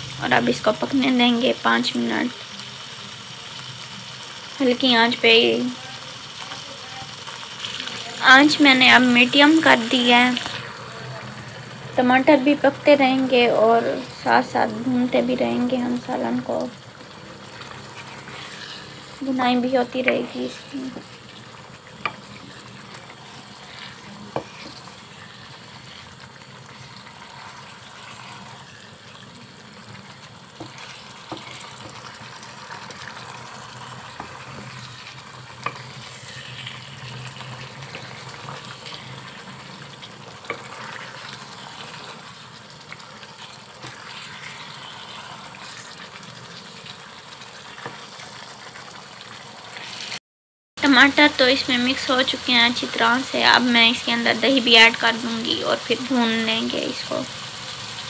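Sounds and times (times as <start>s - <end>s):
curry sizzling in a wok: 0.0s - 50.2s, 50.8s - 58.0s
wooden spatula stirring and scraping: 15.0s - 49.0s.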